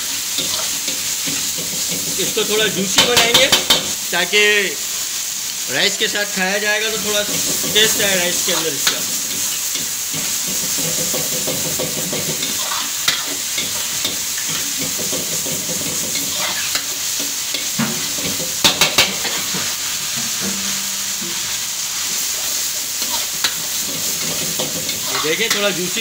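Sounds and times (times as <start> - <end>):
food sizzling in a wok: 0.0 - 26.0
ladle knocking against wok: 10.1 - 12.6, 17.8 - 21.5
metal ladle stirring food: 22.3 - 25.6.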